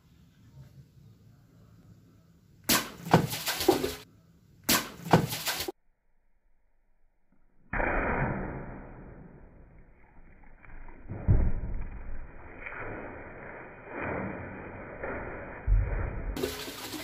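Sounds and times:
water splashing: 2.7s - 4.0s, 4.7s - 5.8s, 12.5s - 17.0s
sword cutting plastic bottles: 4.7s - 5.7s.

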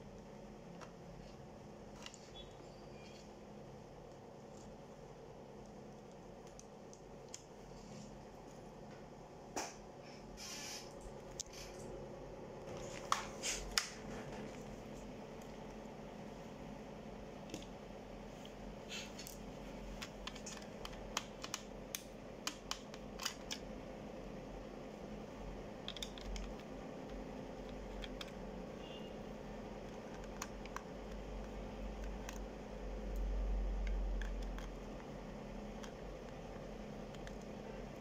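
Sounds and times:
screwdriver clicking on plastic: 25.8s - 28.4s.

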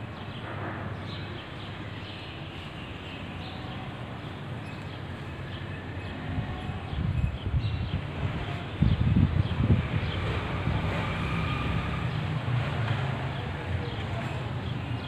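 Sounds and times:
wind buffeting microphone: 6.0s - 12.7s.

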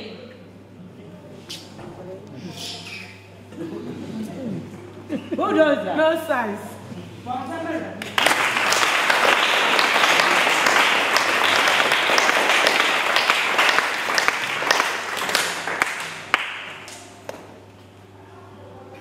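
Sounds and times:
crowd applauding: 8.0s - 17.3s.

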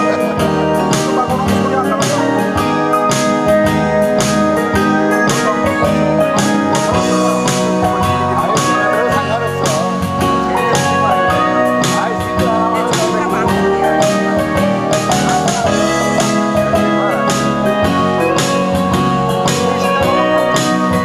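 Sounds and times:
instrumental blues music: 0.0s - 21.0s.

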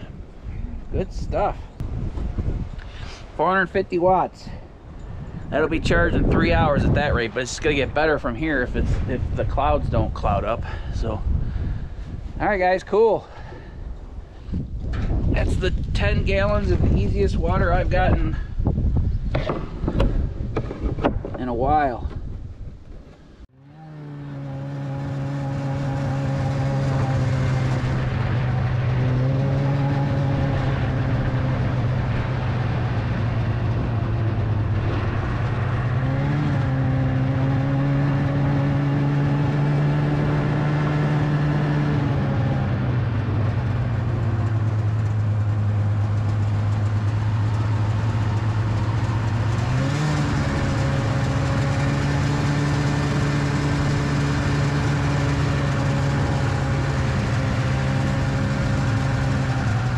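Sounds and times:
snowmobile engine running: 23.6s - 59.9s.

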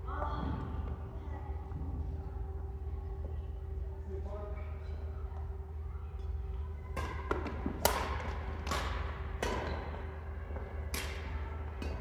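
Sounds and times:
steady low hum: 0.0s - 12.0s
rackets hitting shuttlecock: 6.9s - 12.0s.

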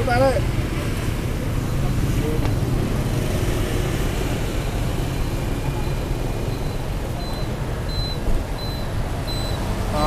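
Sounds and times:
street traffic rumble: 0.0s - 10.0s
faint high beep: 5.7s - 9.6s.

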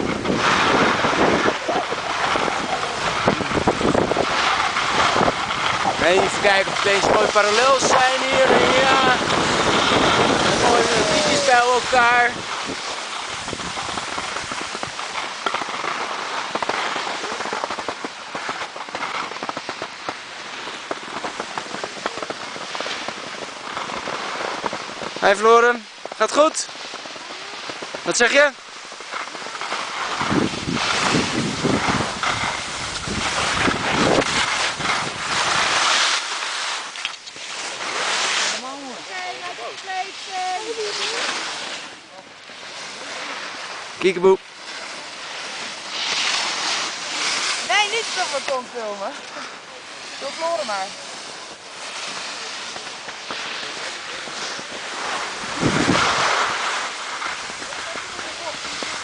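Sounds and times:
wind buffeting microphone: 0.0s - 15.4s, 28.9s - 35.8s, 54.5s - 59.0s
skis sliding over snow: 0.0s - 59.0s.

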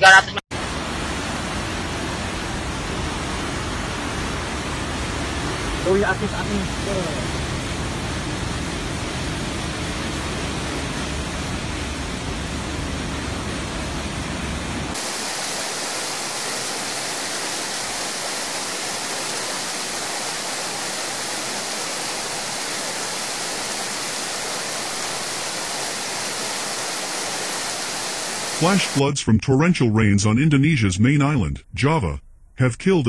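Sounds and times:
rushing floodwater roar: 0.5s - 29.1s
water hiss: 14.9s - 29.0s.

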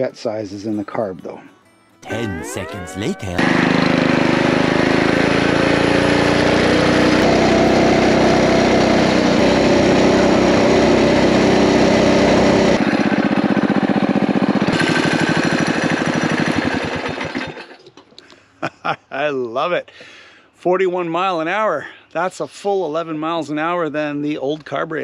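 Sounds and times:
mini bike engine pulling hard: 3.4s - 17.7s.

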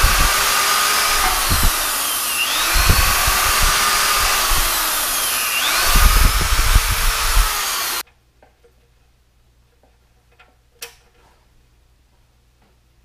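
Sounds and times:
electric drill whining: 0.0s - 8.0s
wire brush scrubbing metal: 0.0s - 8.0s.

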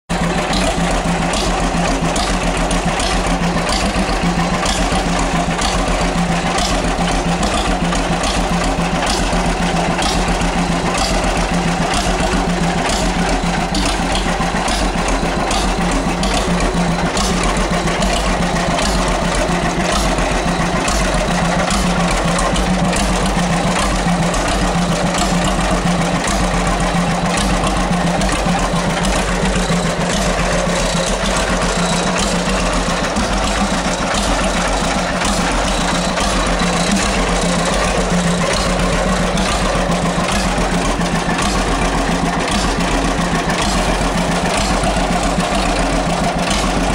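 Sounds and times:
tractor engine idling: 0.0s - 46.9s.

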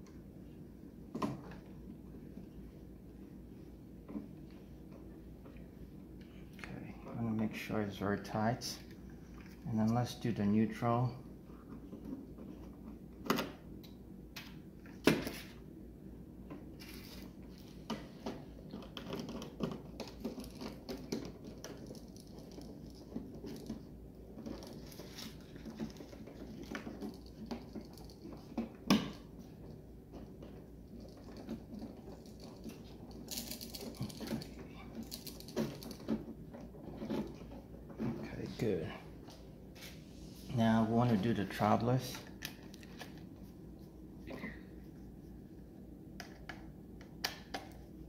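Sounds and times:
wires and plastic clicking and rustling: 16.4s - 45.0s.

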